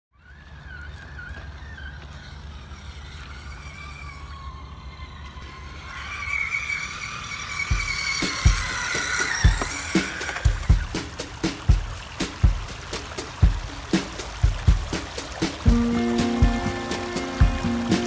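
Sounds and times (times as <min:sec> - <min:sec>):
electric motor whining: 0:00.1 - 0:11.3, 0:15.6 - 0:18.0.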